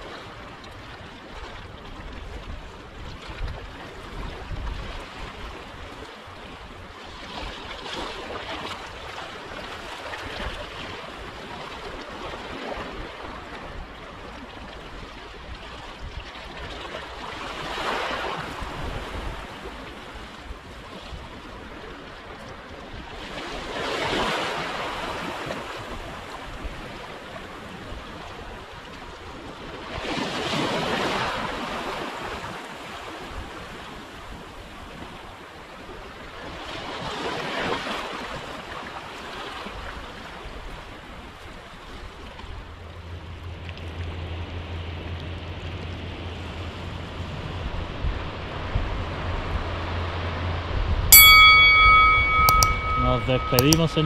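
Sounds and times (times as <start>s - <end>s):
wind rumble on microphone: 0.0s - 54.0s
waves breaking on rocks: 16.6s - 22.3s, 22.9s - 42.7s.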